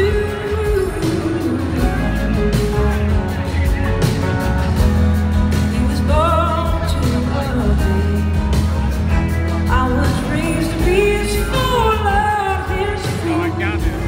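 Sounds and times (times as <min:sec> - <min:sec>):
woman singing: 0:00.0 - 0:02.7, 0:05.7 - 0:08.7, 0:09.7 - 0:13.6
blues-rock band playing: 0:00.0 - 0:14.0.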